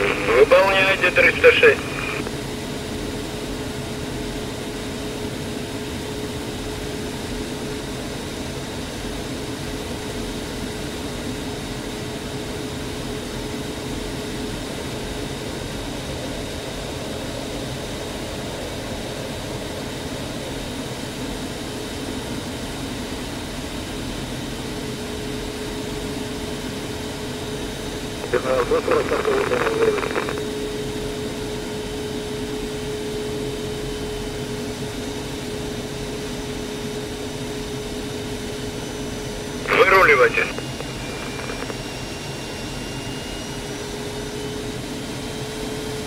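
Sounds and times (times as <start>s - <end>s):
jet cockpit engine rush: 0.0s - 2.3s, 28.2s - 30.6s, 39.6s - 42.2s.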